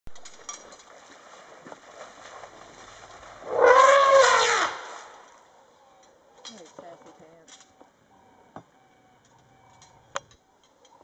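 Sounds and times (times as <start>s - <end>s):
elephant trumpeting: 3.3s - 5.3s.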